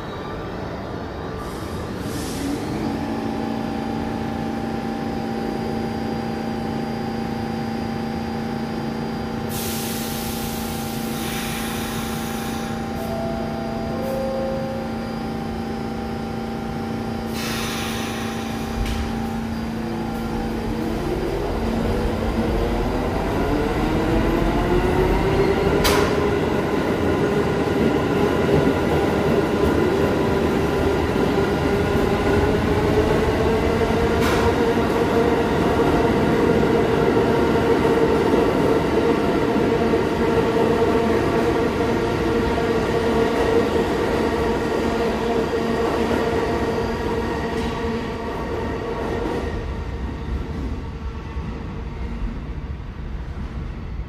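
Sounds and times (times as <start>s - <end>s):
subway train equipment humming: 0.0s - 54.0s
train motor whine and rumble: 0.7s - 54.0s
air hiss bursts: 9.5s - 12.8s, 17.3s - 18.8s.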